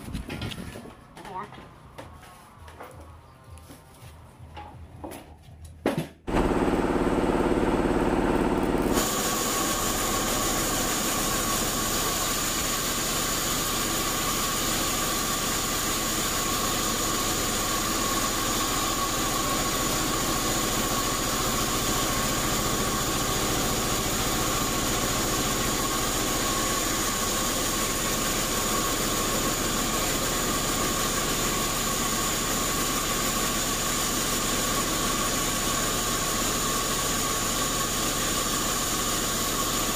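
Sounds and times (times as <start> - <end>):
band saw cutting log: 8.4 - 39.9.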